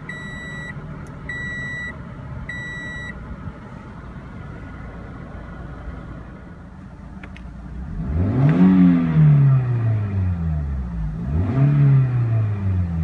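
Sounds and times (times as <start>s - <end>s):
dashboard warning chime beeps: 0.0s - 3.2s
car engine idling: 0.0s - 8.1s.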